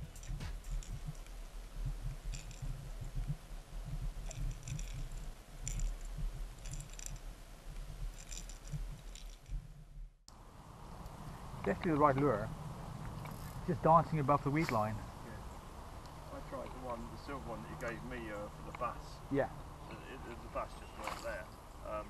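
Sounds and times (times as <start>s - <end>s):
faint clicking or rattling: 0.0s - 9.8s.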